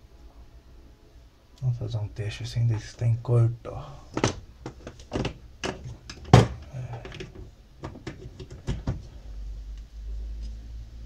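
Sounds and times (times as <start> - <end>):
clicks and knocks of metal parts: 4.1 - 9.1.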